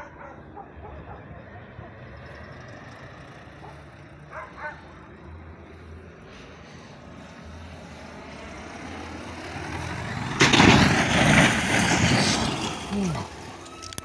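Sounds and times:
loud crash: 10.3s - 12.9s.

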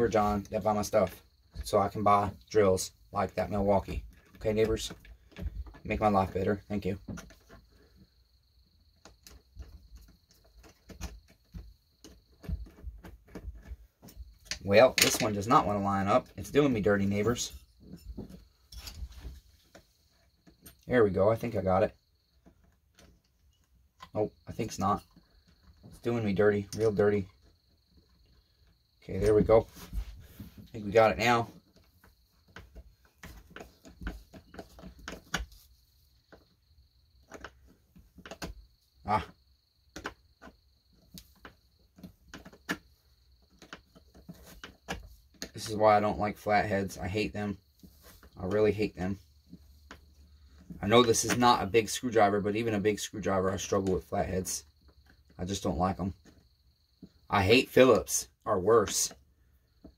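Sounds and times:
small parts clicking and tapping: 8.9s - 16.6s.

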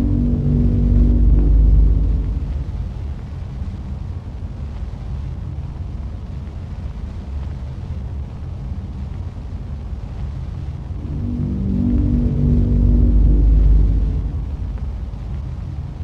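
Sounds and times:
deep low rumble drone: 0.0s - 5.6s, 9.8s - 16.0s.

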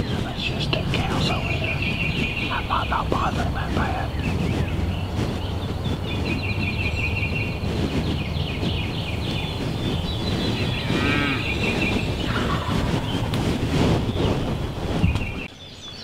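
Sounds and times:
low background rumble: 0.0s - 15.6s
distant turkey gobbling: 10.8s - 13.2s.

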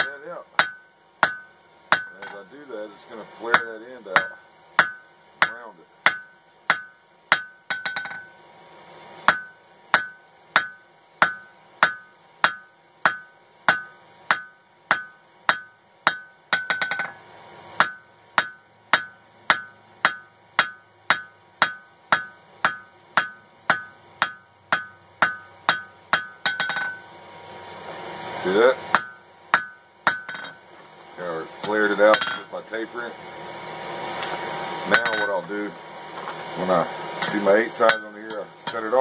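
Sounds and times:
hammer striking steel on anvil: 0.0s - 2.5s, 3.5s - 8.4s, 9.2s - 17.2s, 17.8s - 27.2s, 28.5s - 30.7s, 31.6s - 32.6s, 34.9s - 35.5s, 37.2s - 38.9s.

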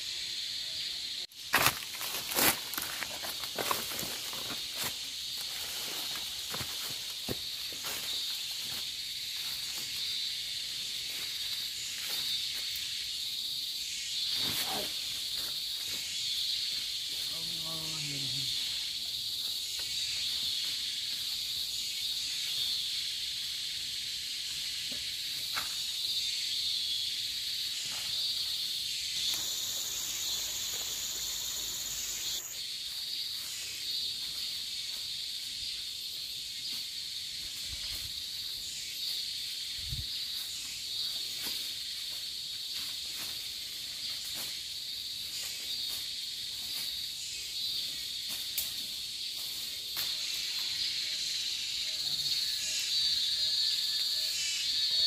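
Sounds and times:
forest insects chorus: 0.0s - 55.0s
higher buzzing insect: 28.2s - 32.7s.

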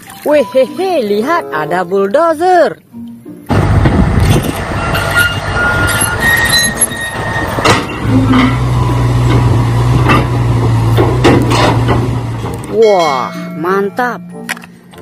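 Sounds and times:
diesel engine drone: 3.5s - 12.8s
steel tracks squealing and clanking: 4.2s - 13.4s.

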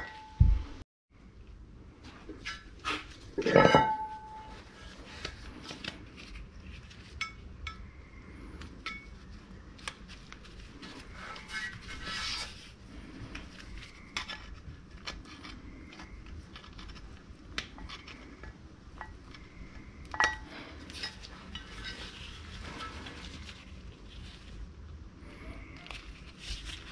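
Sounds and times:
metal tools clinking and scraping: 2.4s - 4.7s.

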